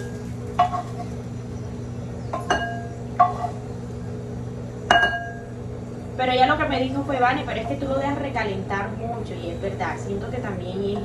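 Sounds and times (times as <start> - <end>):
frying pan clinking against glass bowl: 0.0 - 1.0, 2.4 - 3.6, 4.9 - 5.4
steady low hum: 0.0 - 11.0.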